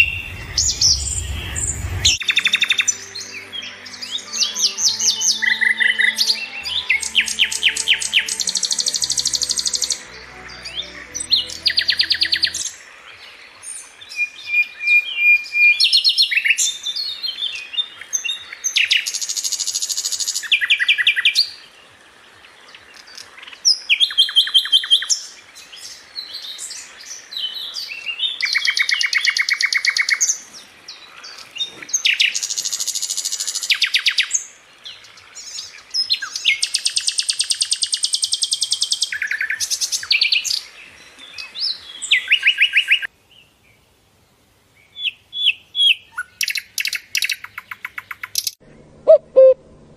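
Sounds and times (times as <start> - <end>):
nightingale singing: 0.0 - 21.6, 31.0 - 43.5, 44.8 - 49.6.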